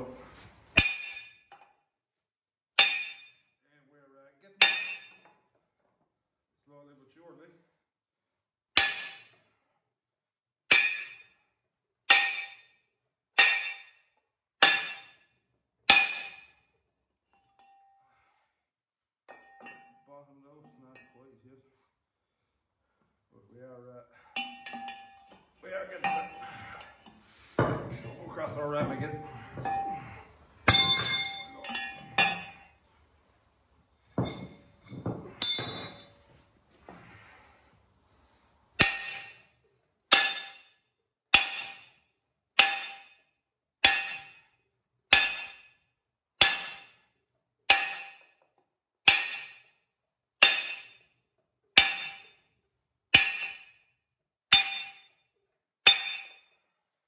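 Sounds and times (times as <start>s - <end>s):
sledgehammer clanging on steel: 0.8s - 1.6s, 2.8s - 3.4s, 4.6s - 5.4s, 8.8s - 9.4s, 10.7s - 11.3s, 13.4s - 14.0s, 14.6s - 15.2s, 15.9s - 16.6s, 24.3s - 32.8s, 34.0s - 37.4s, 38.8s - 39.5s, 40.1s - 40.8s, 41.4s - 42.0s, 42.6s - 43.2s, 43.8s - 44.5s, 45.1s - 45.8s, 46.4s - 47.0s, 47.7s - 48.4s, 49.1s - 49.7s, 50.4s - 51.0s, 51.8s - 52.4s, 53.2s - 53.8s, 54.5s - 55.1s, 55.9s - 56.5s.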